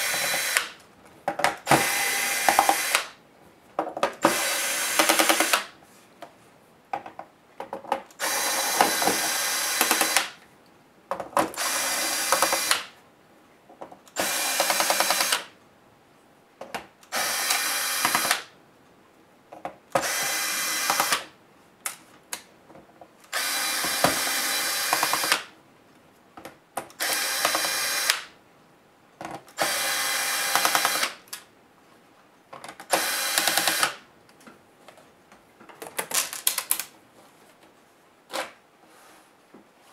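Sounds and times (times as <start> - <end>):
cordless electric screwdriver: 0.0 - 0.8, 1.7 - 3.1, 4.2 - 5.7, 8.2 - 10.3, 11.6 - 12.9, 14.2 - 15.5, 17.1 - 18.5, 20.0 - 21.2, 23.3 - 25.5, 27.0 - 28.3, 29.6 - 31.2, 32.9 - 34.0.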